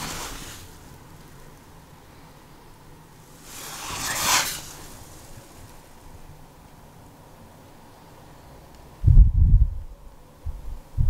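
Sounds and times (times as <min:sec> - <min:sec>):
handling rustle: 0:00.0 - 0:01.7
faint steady hiss: 0:00.0 - 0:11.0.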